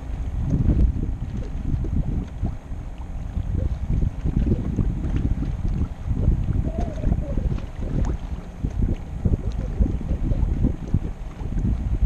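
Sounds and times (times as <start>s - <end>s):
water lapping against hull: 0.0s - 12.0s
wind buffeting microphone: 0.0s - 12.0s.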